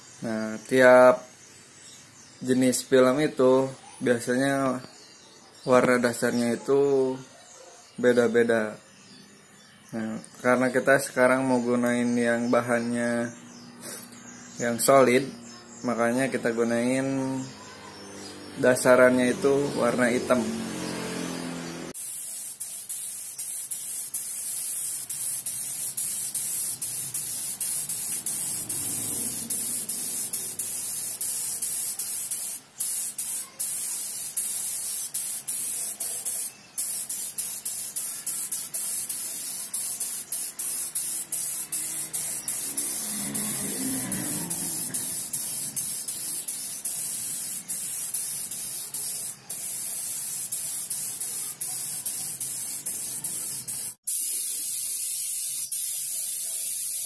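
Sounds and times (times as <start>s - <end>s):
spray gun hissing: 13.8s - 14.1s, 16.4s - 57.0s.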